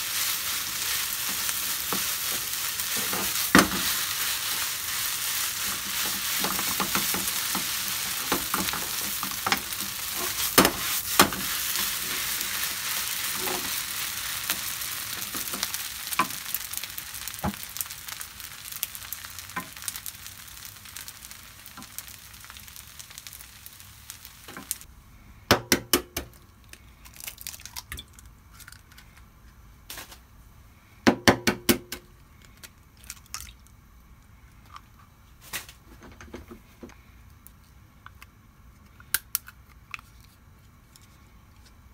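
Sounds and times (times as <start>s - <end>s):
rice sizzling in a frying pan: 0.0s - 24.9s.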